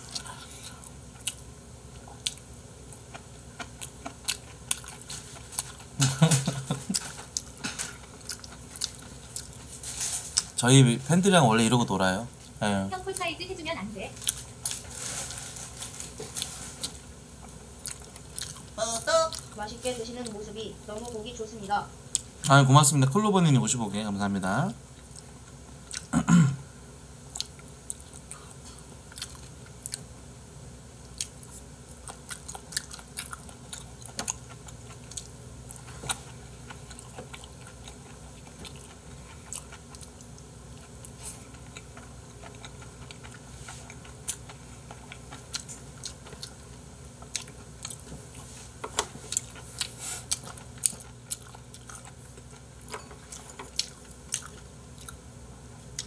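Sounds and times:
person chewing: 0.0s - 10.6s, 14.2s - 19.6s, 25.0s - 26.2s, 27.3s - 30.1s, 31.0s - 55.2s.

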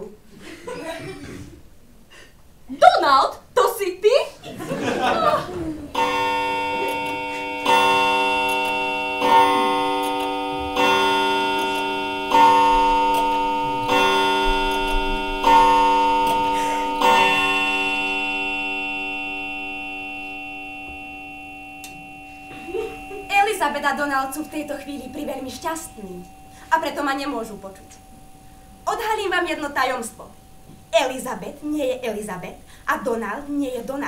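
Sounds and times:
clock chime striking: 5.9s - 32.6s.

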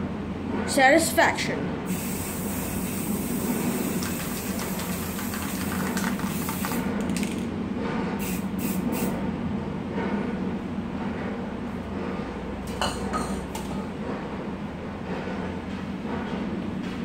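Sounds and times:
spray paint can hissing: 1.9s - 7.4s, 8.2s - 9.2s
spray cans clicking: 3.8s - 7.5s.

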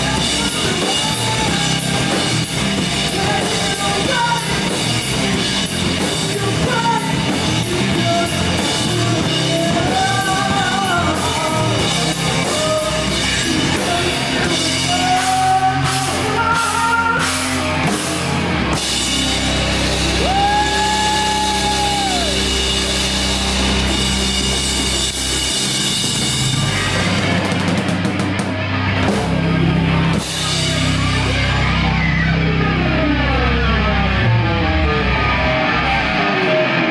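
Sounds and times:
person singing: 0.0s - 5.1s, 6.0s - 18.1s
bass guitar: 0.0s - 36.9s
distorted electric guitars: 0.0s - 36.9s
drum kit: 0.0s - 36.9s.

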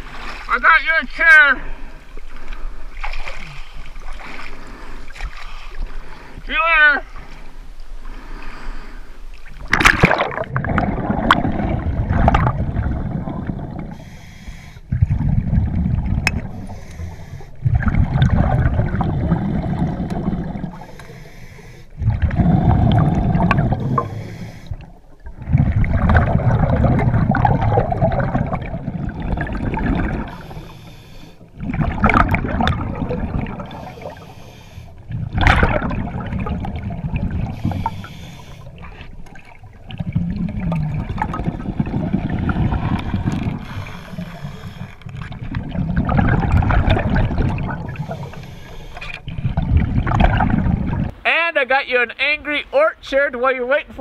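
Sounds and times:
diver breathing through regulator: 3.5s - 6.5s, 8.0s - 9.3s, 13.8s - 15.0s, 16.4s - 17.9s, 19.4s - 25.0s, 30.0s - 31.7s, 33.5s - 35.3s, 37.4s - 39.2s, 42.6s - 45.4s, 47.4s - 49.5s
bubbles gurgling underwater: 9.5s - 14.0s, 14.9s - 16.8s, 17.6s - 20.9s, 22.0s - 30.7s, 31.5s - 34.3s, 35.0s - 38.1s, 38.7s - 48.4s, 49.0s - 51.2s
splash into water: 9.6s - 12.7s, 35.3s - 36.6s.

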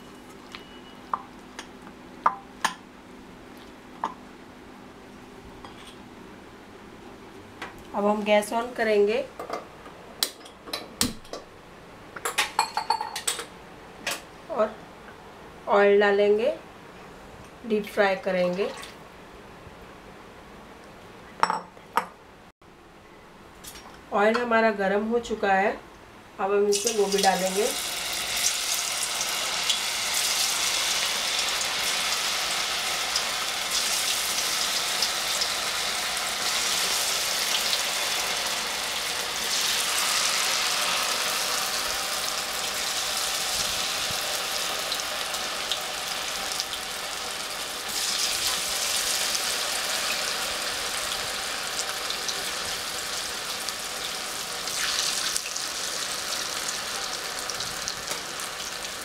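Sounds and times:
food deep-frying in hot oil: 26.7s - 59.0s.

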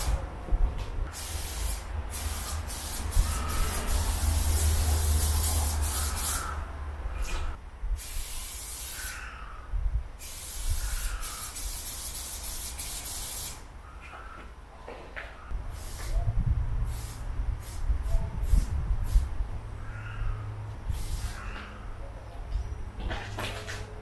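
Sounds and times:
spray paint can hissing: 1.1s - 6.6s, 8.0s - 9.2s, 10.2s - 13.6s, 15.7s - 16.2s, 16.9s - 19.3s, 20.9s - 21.5s.

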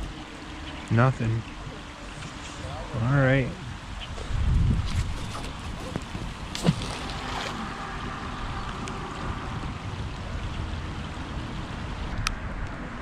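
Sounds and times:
rain falling on a river: 5.5s - 12.2s.

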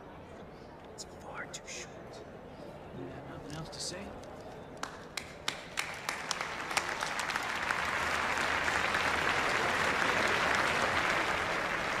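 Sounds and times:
crowd applauding: 4.8s - 12.0s.

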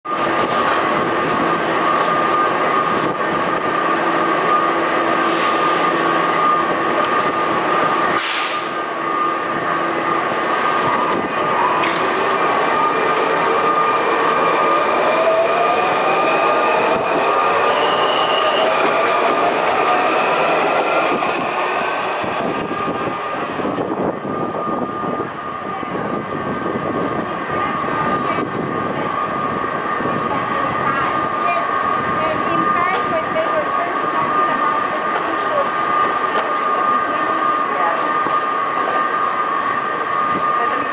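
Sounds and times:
train electrical hum and whine: 0.1s - 40.9s
traction motors rising in pitch: 8.8s - 25.1s.

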